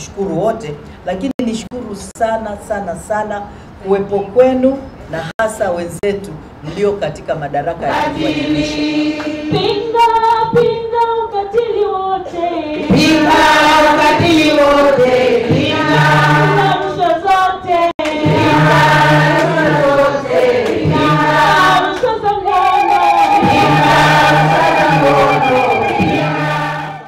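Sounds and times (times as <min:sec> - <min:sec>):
group singing in chorus: 0:07.8 - 0:10.5, 0:11.9 - 0:27.0.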